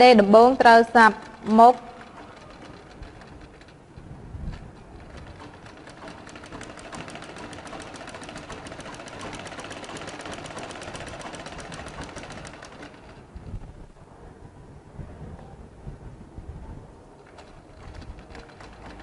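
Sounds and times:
sewing machine stitching: 0:00.7 - 0:03.9, 0:04.5 - 0:13.2, 0:17.2 - 0:19.0.

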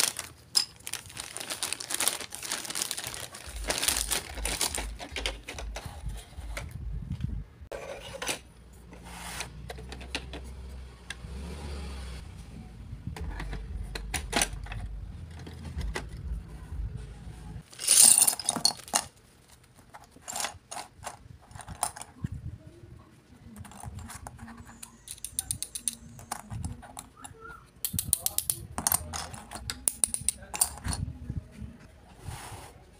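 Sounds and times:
plastic toy parts clicking and clattering: 0:00.0 - 0:06.2, 0:17.6 - 0:22.2, 0:23.6 - 0:31.0.

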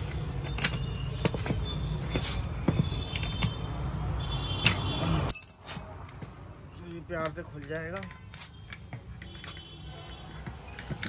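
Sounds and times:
metal tools clinking on metal: 0:00.4 - 0:03.3, 0:04.6 - 0:06.2.

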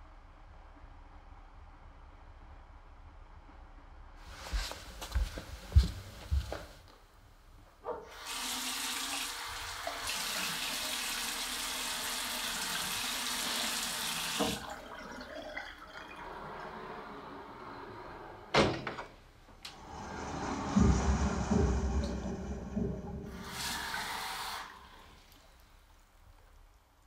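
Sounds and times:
tap water running into sink: 0:08.1 - 0:16.1, 0:20.8 - 0:25.5.

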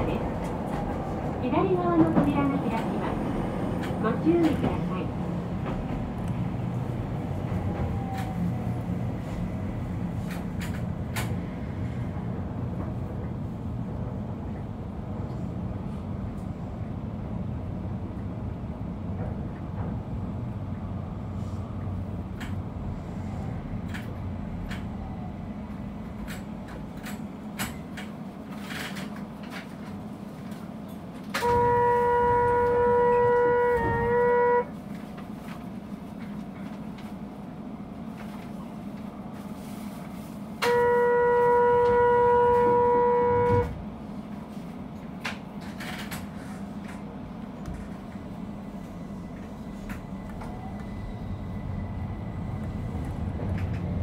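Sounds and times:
train rumbling on rails: 0:00.0 - 0:54.0
train horn blast: 0:31.4 - 0:34.8, 0:40.6 - 0:43.8.

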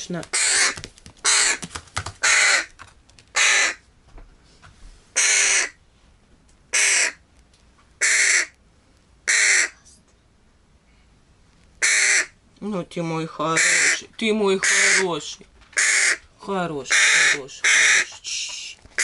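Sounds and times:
crow cawing: 0:00.3 - 0:02.7, 0:03.4 - 0:03.8, 0:05.2 - 0:05.8, 0:06.7 - 0:07.2, 0:08.0 - 0:08.6, 0:09.3 - 0:09.8, 0:11.8 - 0:12.4, 0:14.6 - 0:15.1, 0:15.8 - 0:16.2, 0:16.9 - 0:18.2.

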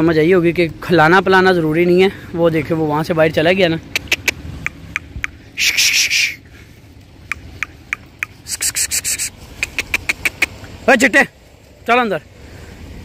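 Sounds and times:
sharp clicks: 0:03.9 - 0:06.1, 0:07.0 - 0:10.7
leaves rustling and crackling: 0:08.1 - 0:13.0.

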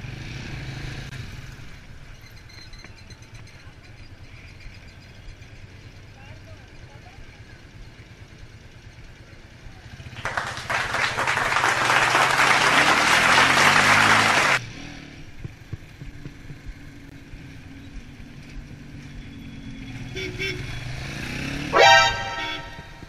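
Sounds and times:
motorcycle engine accelerating: 0:00.0 - 0:02.2, 0:07.7 - 0:23.0.

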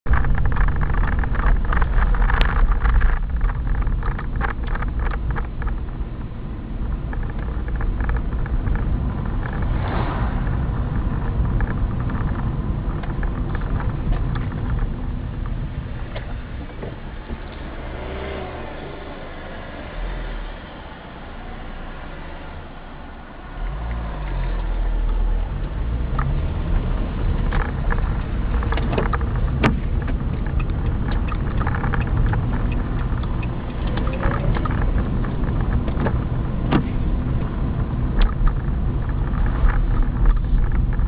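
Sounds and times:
car engine and road noise: 0:00.0 - 0:41.0
light clicks and knocks: 0:27.3 - 0:37.6.

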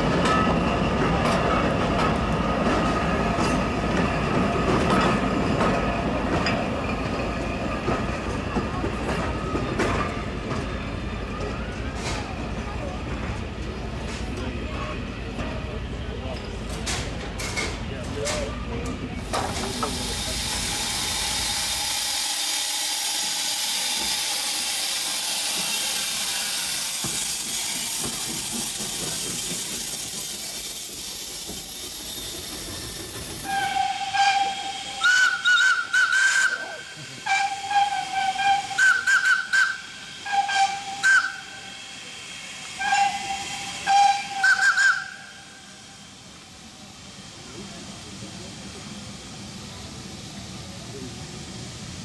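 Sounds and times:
steam locomotive hissing: 0:00.1 - 0:52.0
short steam whistle blasts: 0:33.4 - 0:42.0, 0:42.7 - 0:46.0.

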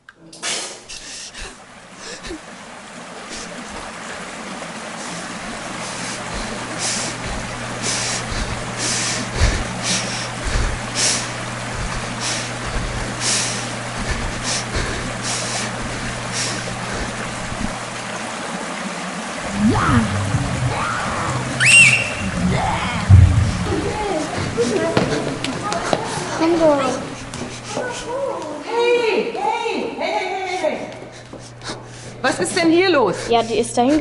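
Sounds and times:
short hissing swishes: 0:00.4 - 0:01.4
steady low hum: 0:00.9 - 0:28.2
rising wavering tones: 0:19.4 - 0:24.2
rushing noise: 0:19.4 - 0:24.6.

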